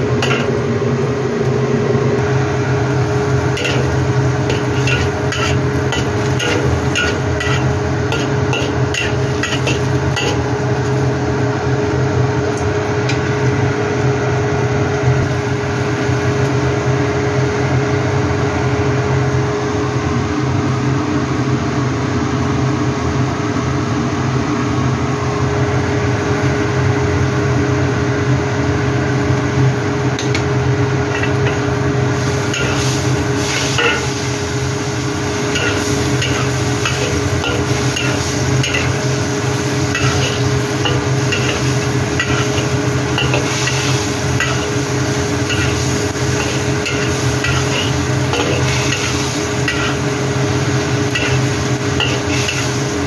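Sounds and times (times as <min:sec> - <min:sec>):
oil sizzling in a wok: 0:00.0 - 0:12.2, 0:15.0 - 0:20.0, 0:25.7 - 0:53.0
steady mechanical hum: 0:00.0 - 0:53.0
spatula scraping and tapping wok: 0:03.2 - 0:10.5, 0:31.1 - 0:31.7, 0:32.5 - 0:34.3, 0:35.4 - 0:53.0.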